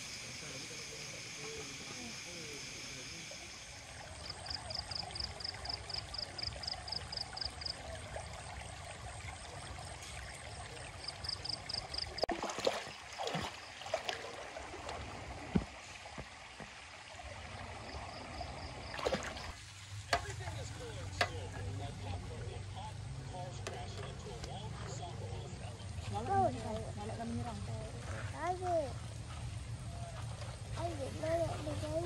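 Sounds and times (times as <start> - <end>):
stream running over rocks: 0.0 - 28.9
feet wading and splashing: 3.8 - 16.8, 18.6 - 21.8.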